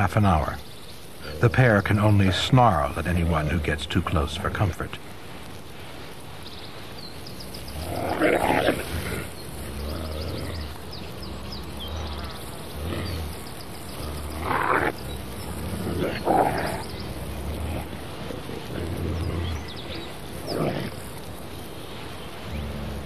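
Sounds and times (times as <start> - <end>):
wolves snarling: 7.4 - 23.0.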